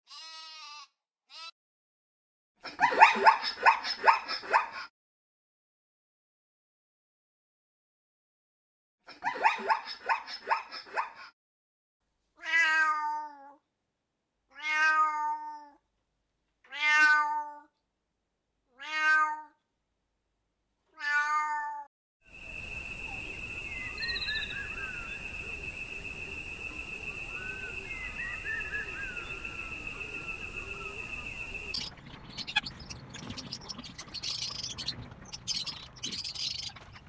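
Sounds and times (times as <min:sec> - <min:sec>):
cat meowing: 0:12.4 - 0:13.5, 0:14.5 - 0:15.8, 0:16.7 - 0:17.7, 0:18.7 - 0:19.6, 0:20.9 - 0:21.9
steady high-pitched tone: 0:22.3 - 0:32.6
faint chirps: 0:22.3 - 0:37.0.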